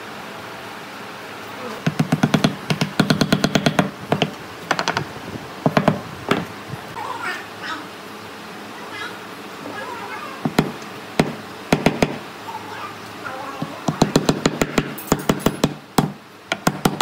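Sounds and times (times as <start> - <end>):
rapid sharp knocks: 1.8 - 5.1, 5.7 - 6.5, 10.4 - 12.2, 13.8 - 17.0.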